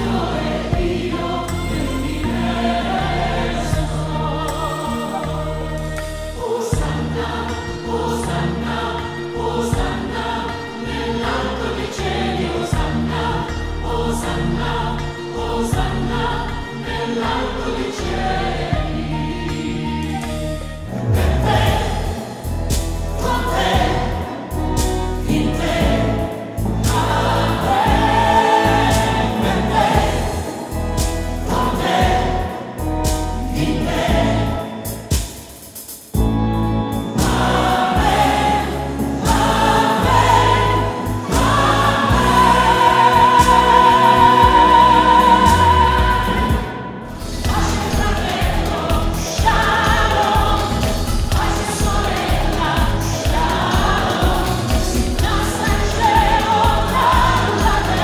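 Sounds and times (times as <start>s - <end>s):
choir singing a hymn: 0.0s - 35.4s, 36.9s - 58.0s
flute: 18.7s - 21.8s
electronic keyboard: 36.1s - 58.0s.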